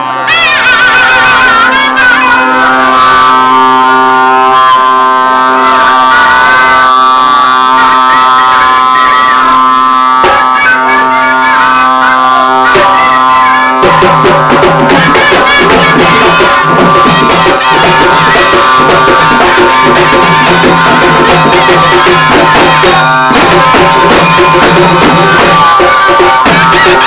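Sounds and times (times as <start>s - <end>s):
festival band music: 0.0s - 27.0s
held drone note: 0.0s - 27.0s
drums with quick strokes: 12.6s - 27.0s.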